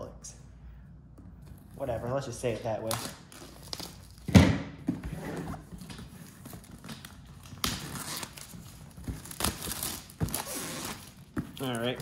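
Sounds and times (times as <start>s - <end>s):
plastic wrap crinkling and tearing: 6.2s - 12.0s.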